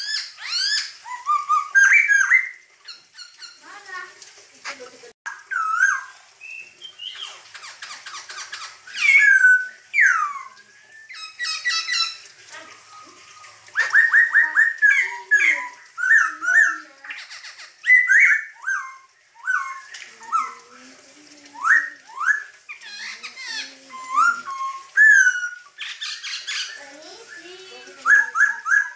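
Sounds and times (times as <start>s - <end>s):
harsh rattling bird chatter: 0.0s - 20.6s, 21.7s - 28.9s
bird singing whistled song: 5.5s - 7.4s, 8.9s - 12.2s, 12.9s - 16.7s, 17.8s - 20.6s, 23.9s - 28.9s.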